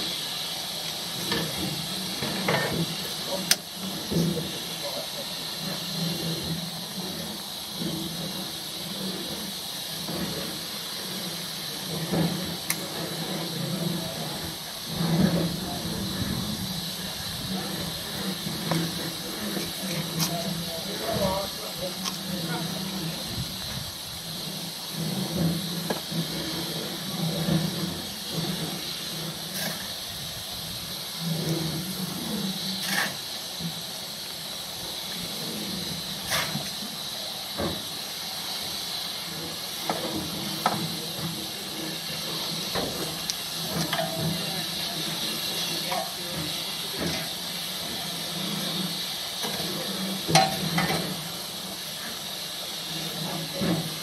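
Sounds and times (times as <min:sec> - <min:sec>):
steam hissing: 0:00.0 - 0:54.0
uneven low rumbles: 0:01.2 - 0:32.7
shovel scraping metal: 0:32.8 - 0:33.2.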